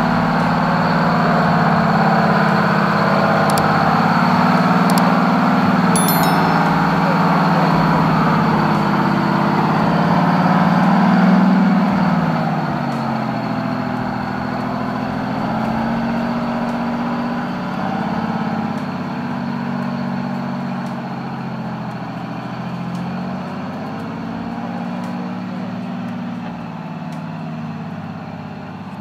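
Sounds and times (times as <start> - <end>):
truck diesel engine under load: 8.6 - 29.0.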